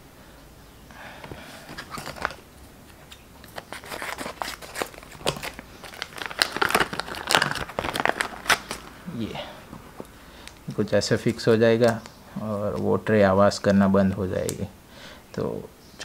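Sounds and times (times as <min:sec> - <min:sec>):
plastic packet crinkling and tearing: 0:01.7 - 0:09.1
scissors cutting plastic: 0:03.0 - 0:08.9.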